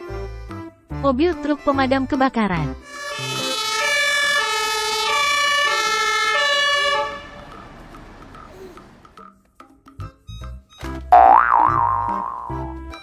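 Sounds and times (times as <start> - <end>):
street noise: 2.6 - 9.2
two-tone siren: 2.8 - 8.1.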